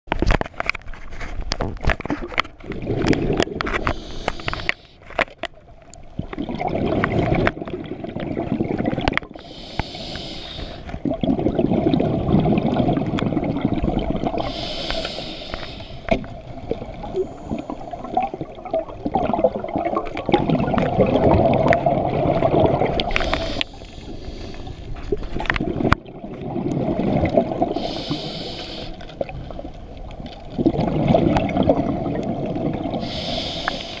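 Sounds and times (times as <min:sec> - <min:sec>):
exhaled bubbles rushing: 0:02.0 - 0:04.8, 0:06.1 - 0:15.2, 0:16.2 - 0:24.6, 0:25.3 - 0:33.3
regulator inhale hiss: 0:03.8 - 0:05.0, 0:09.4 - 0:11.0, 0:14.4 - 0:16.2, 0:23.1 - 0:25.0, 0:27.7 - 0:29.1, 0:33.0 - 0:34.0.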